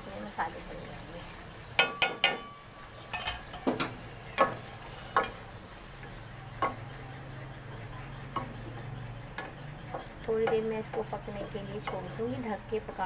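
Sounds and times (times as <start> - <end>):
faint sizzling: 0.0 - 13.0
wooden spatula stirring in pot: 3.0 - 13.0.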